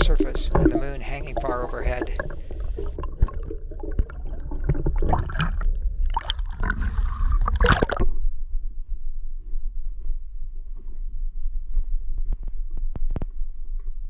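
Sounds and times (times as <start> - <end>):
water sloshing and bubbling: 0.0 - 8.6
low underwater rumble: 0.0 - 14.0.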